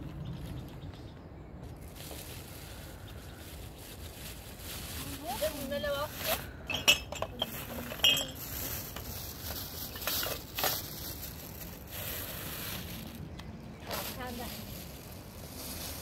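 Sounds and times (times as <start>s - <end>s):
hard objects clinking: 6.4s - 11.0s.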